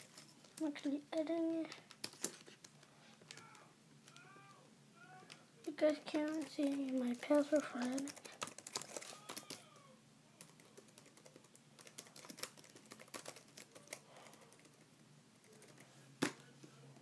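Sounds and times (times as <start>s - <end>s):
faint low hum: 0.0s - 17.0s
typing on keyboard: 6.1s - 9.6s, 10.4s - 15.9s.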